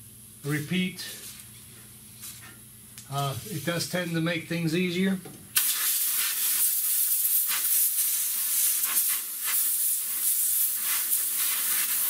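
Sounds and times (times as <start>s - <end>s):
compressed air blow gun hiss: 5.6s - 12.0s.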